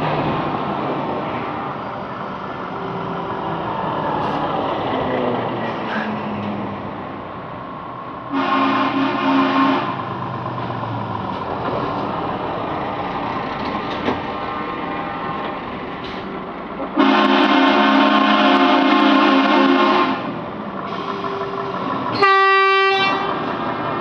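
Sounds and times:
trucks driving past: 0.0 - 24.0
tyres on road: 0.0 - 24.0
truck air horn: 8.3 - 10.0, 17.0 - 21.3, 22.1 - 23.4.

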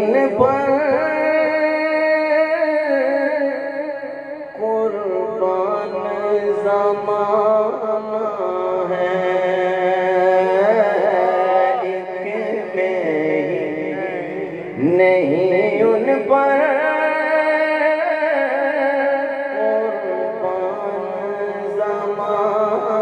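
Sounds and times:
man singing long notes: 0.0 - 23.0.

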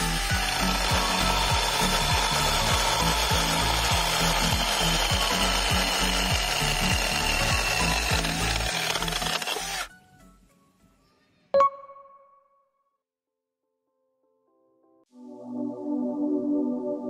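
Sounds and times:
background music with steady beat: 0.0 - 8.5
chainsaw cutting log: 0.0 - 9.9.

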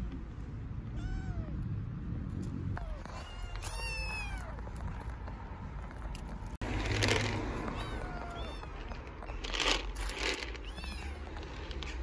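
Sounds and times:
kittens meowing: 0.9 - 1.6, 2.7 - 5.0, 7.6 - 11.6.

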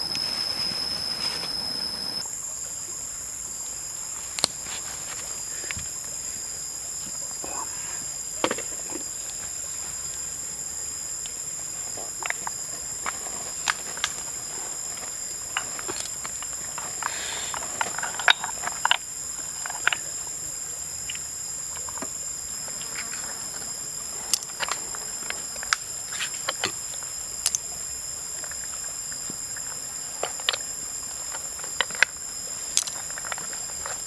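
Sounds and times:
high-pitched insect drone: 0.0 - 2.3.

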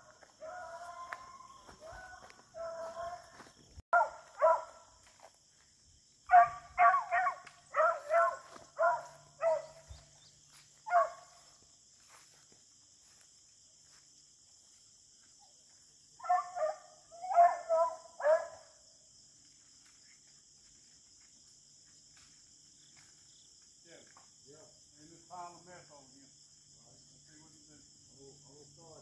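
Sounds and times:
dogs barking and baying: 0.0 - 5.0, 6.2 - 11.6, 16.2 - 18.8
drone of insects: 0.0 - 29.0.

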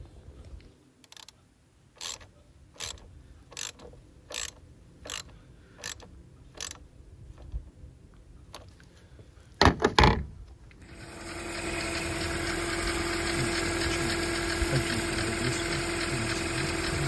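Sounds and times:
socket ratchet clicking: 2.0 - 6.8.

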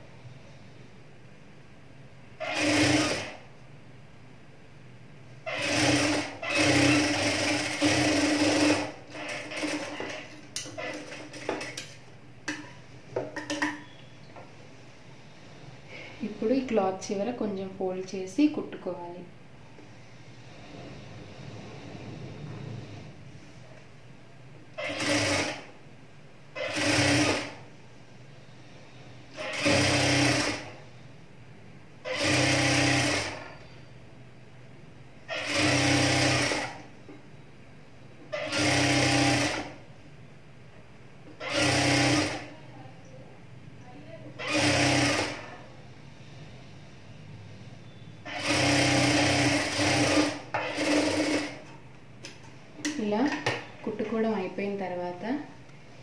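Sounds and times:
sewing machine stitching: 2.4 - 3.4, 5.5 - 11.9, 24.8 - 25.7, 26.6 - 27.6, 29.3 - 30.8, 32.0 - 33.5, 35.3 - 36.9, 38.4 - 39.8, 41.4 - 42.5, 44.4 - 45.5, 48.2 - 51.6.

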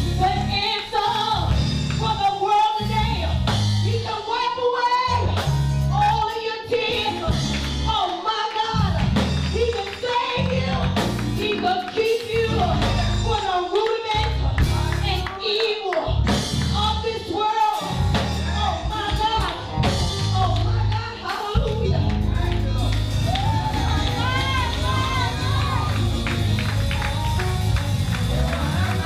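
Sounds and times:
woman singing gospel: 0.0 - 26.0
instrumental accompaniment with bass: 0.0 - 29.0.

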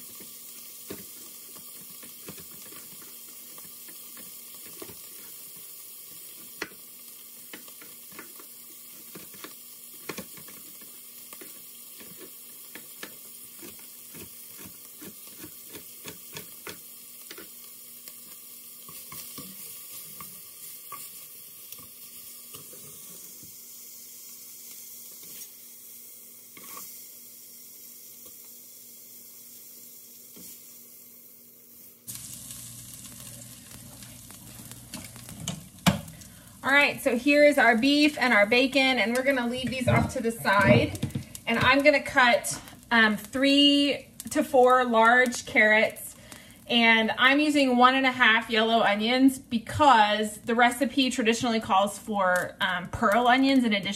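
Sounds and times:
small pops and crackles: 0.0 - 23.6, 32.1 - 36.5, 39.0 - 46.7
meat sizzling in hot fat: 0.0 - 53.9.

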